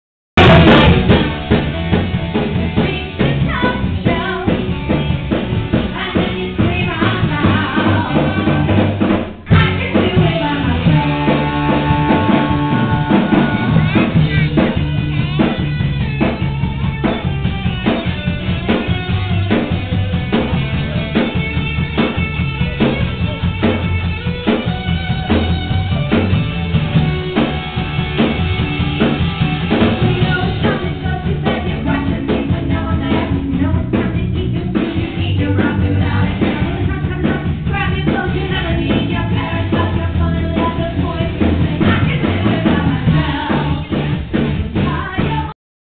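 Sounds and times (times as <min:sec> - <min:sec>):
live rock band: 0:00.4 - 0:45.5
woman singing: 0:02.5 - 0:05.0, 0:05.8 - 0:08.9, 0:09.5 - 0:14.4, 0:30.1 - 0:45.6.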